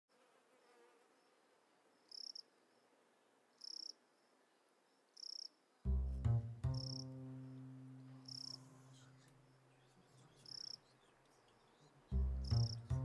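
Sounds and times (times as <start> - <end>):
cricket chirping: 1.9 - 2.9, 3.5 - 5.7, 6.8 - 7.1, 8.1 - 12.9.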